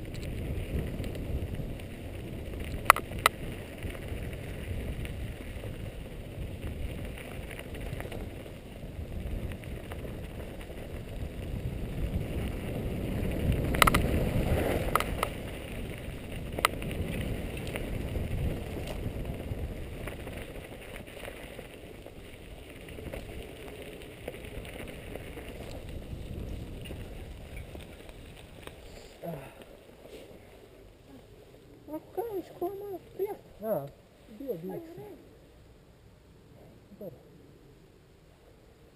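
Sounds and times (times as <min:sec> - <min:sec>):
sharp clacks from bike: 0:00.0 - 0:29.0
bike tyre and frame rattle: 0:00.0 - 0:31.6
wind rumble on microphone: 0:00.0 - 0:35.5.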